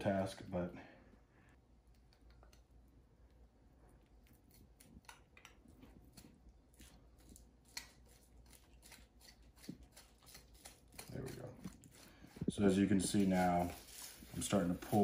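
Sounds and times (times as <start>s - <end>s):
knife scraping meat: 6.1s - 15.0s.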